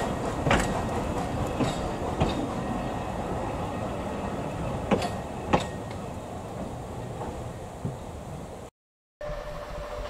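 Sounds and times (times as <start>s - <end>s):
wheels clicking over rail joints: 0.0s - 2.9s, 4.8s - 8.0s
railway carriages rumbling on rails: 0.0s - 10.0s.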